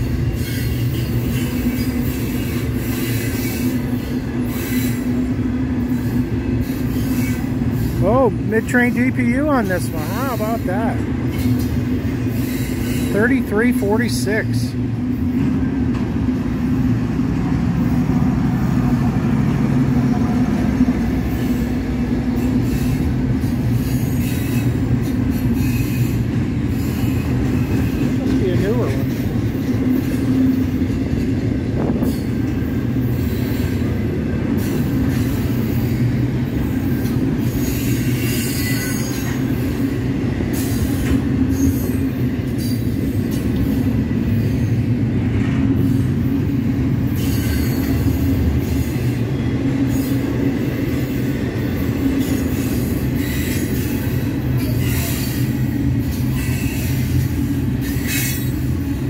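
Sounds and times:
train wheels rumbling on rail: 0.0 - 59.0
high-pitched wheel squeals: 36.8 - 39.4.

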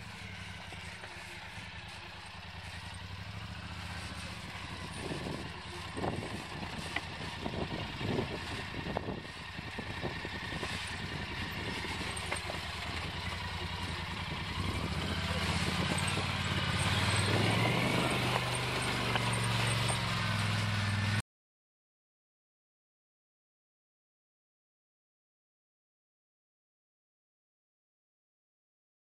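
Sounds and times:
quad bike engine at low speed: 0.0 - 21.2.

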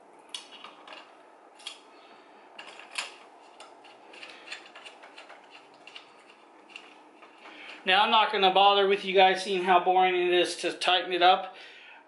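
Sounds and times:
metal bolts clicking and clinking: 2.6 - 7.4.

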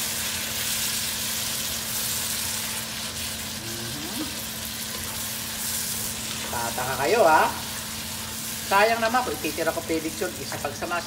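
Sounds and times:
food sizzling in a pan: 0.0 - 11.0.

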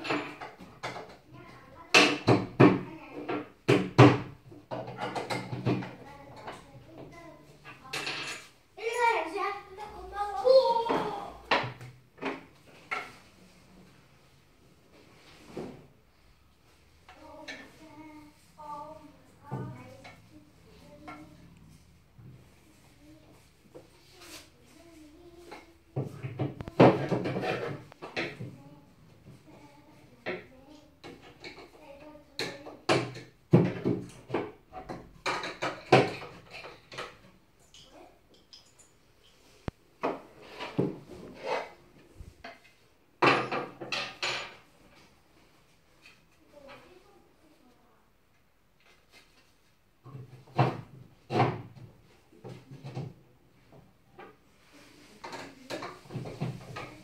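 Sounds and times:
wooden panels knocking and clunking: 1.9 - 8.3, 32.4 - 37.3, 50.0 - 54.4.

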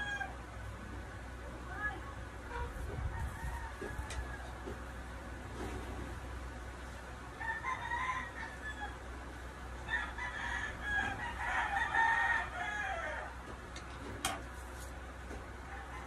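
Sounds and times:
rooster crowing: 0.0 - 0.4, 3.0 - 4.7, 7.3 - 9.1, 9.8 - 13.4, 15.6 - 16.0.

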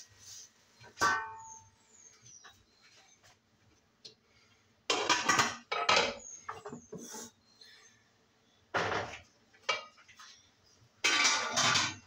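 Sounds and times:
dishes clinking in a sink: 1.0 - 1.7, 11.0 - 12.0
dishes clattering and splashing: 4.9 - 6.8, 8.8 - 10.2, 11.0 - 12.0.

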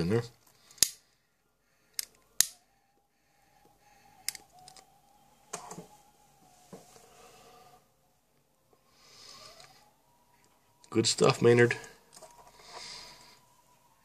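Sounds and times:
lighter clicks: 2.0 - 2.6.

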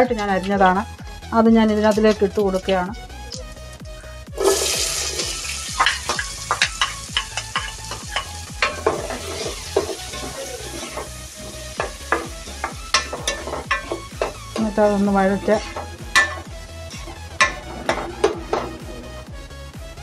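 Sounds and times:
onions sizzling in hot oil: 4.4 - 18.0
spoon scraping pot: 5.9 - 14.7, 15.5 - 18.9.

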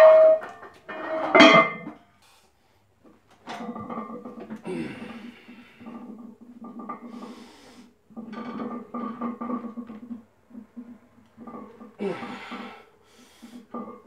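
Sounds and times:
man breathing hard: 4.6 - 5.9, 7.1 - 7.9, 12.0 - 13.7.

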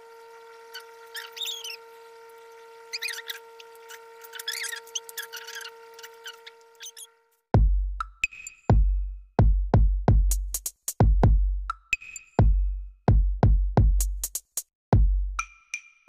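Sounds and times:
electronic music with drum machine: 7.6 - 15.9.

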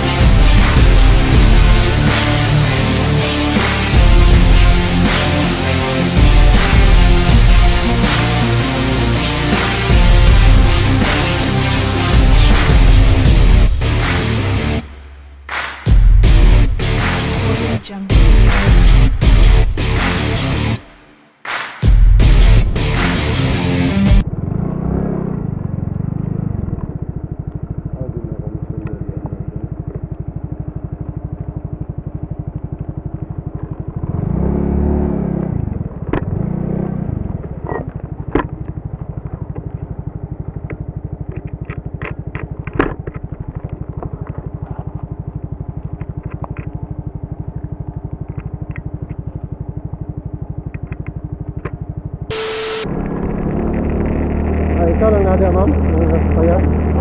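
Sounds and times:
small motorcycle engine: 0.0 - 14.4, 24.2 - 57.0
gravel clicks and rattles: 37.4 - 49.8.

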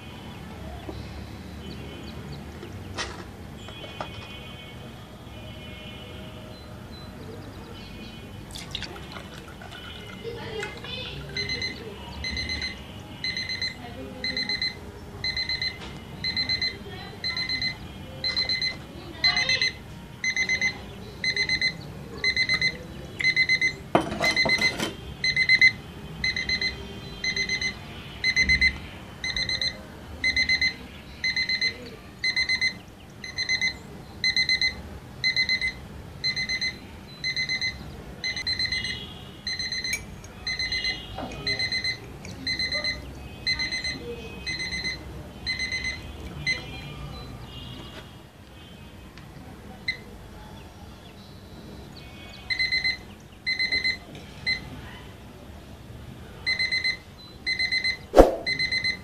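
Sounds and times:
alarm clock buzzer beeping: 11.4 - 16.7, 23.3 - 31.7, 32.3 - 39.9, 40.5 - 42.8, 43.4 - 46.0, 52.6 - 54.6, 56.5 - 59.0.

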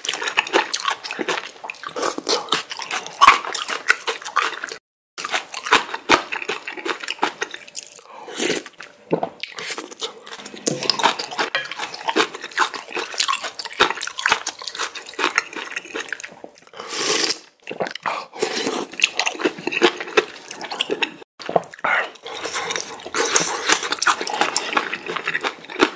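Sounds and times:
wet chewing with crunchy bites: 0.0 - 25.9.

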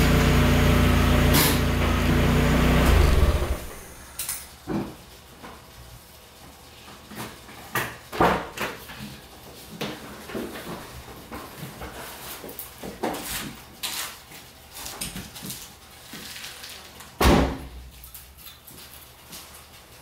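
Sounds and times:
car door shutting: 2.7 - 4.2.

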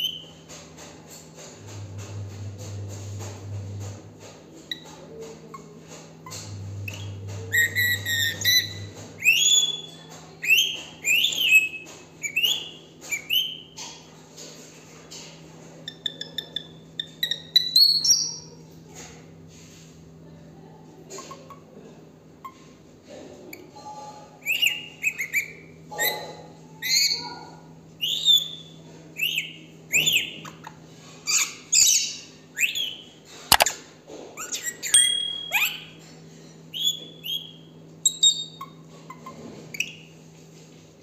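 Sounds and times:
parakeet chirps and whistles: 6.8 - 13.6, 24.4 - 26.2, 28.0 - 30.6, 31.3 - 33.7, 34.4 - 36.0, 36.7 - 38.8
sharp click: 33.5 - 33.7.

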